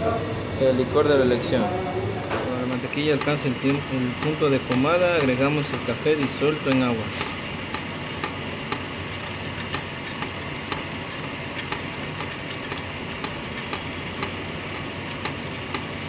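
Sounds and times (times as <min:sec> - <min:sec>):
stand mixer running: 0:00.0 - 0:16.0
light ticking: 0:02.7 - 0:08.9, 0:09.7 - 0:14.4.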